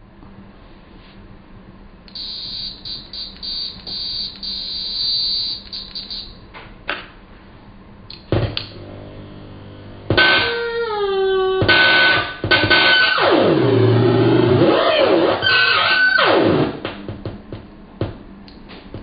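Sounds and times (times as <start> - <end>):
high-pitched electronic tone: 2.2 - 6.3
clicks: 2.9 - 4.6, 5.5 - 6.3, 8.1 - 8.8
low hum: 7.4 - 15.5.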